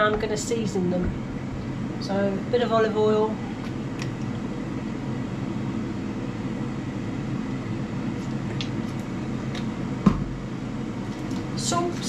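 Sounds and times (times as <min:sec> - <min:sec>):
air fryer fan humming: 0:00.0 - 0:12.0.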